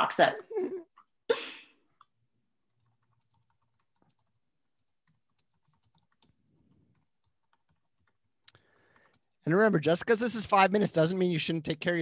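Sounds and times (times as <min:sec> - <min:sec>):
faint keyboard typing: 0:02.6 - 0:09.4.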